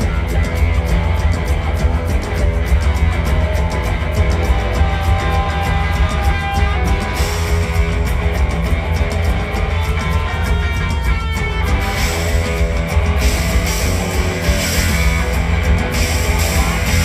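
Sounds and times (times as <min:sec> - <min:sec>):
bass guitar: 0:00.0 - 0:17.0
drum beat: 0:00.0 - 0:17.0
electric guitar: 0:00.0 - 0:17.0.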